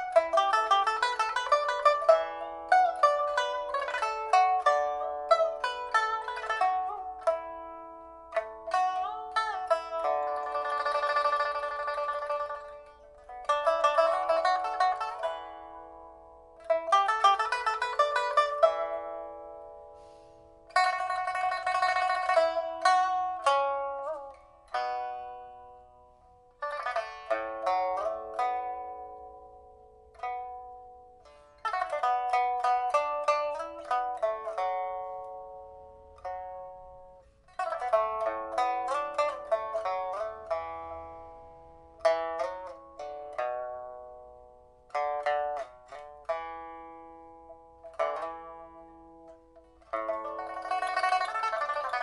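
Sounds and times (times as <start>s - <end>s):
pipa plucked notes: 0.0s - 52.0s.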